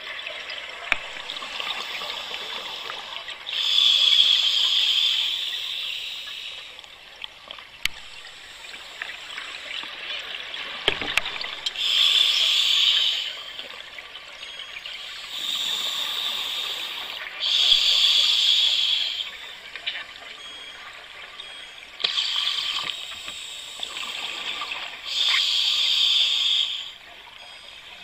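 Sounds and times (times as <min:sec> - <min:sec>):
steady watery hiss: 0:00.0 - 0:20.2, 0:21.0 - 0:28.0
diver breathing through regulator: 0:01.6 - 0:06.7, 0:11.8 - 0:13.6, 0:15.0 - 0:19.4, 0:25.0 - 0:27.0.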